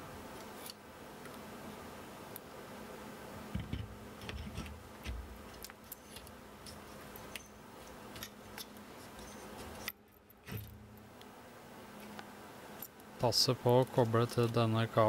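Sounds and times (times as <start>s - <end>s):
metal parts clicking and tapping: 3.6s - 10.8s.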